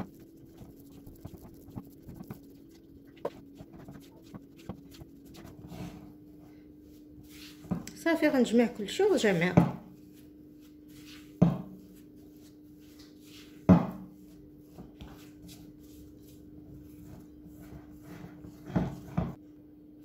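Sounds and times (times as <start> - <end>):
spatula scraping dough in bowl: 0.0 - 6.1, 14.8 - 19.4
low hum: 0.0 - 7.2.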